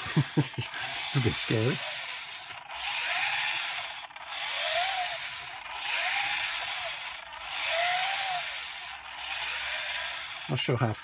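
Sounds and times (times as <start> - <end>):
motor whine rising and falling: 0.0 - 10.6.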